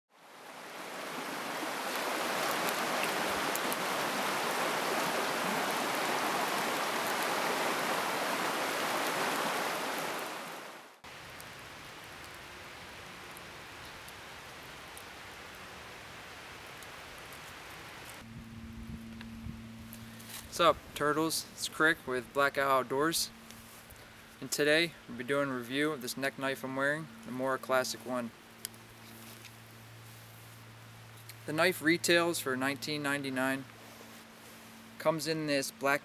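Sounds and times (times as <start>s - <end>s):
river rushing over rapids: 0.2s - 11.3s
quiet steady hiss: 0.2s - 36.0s.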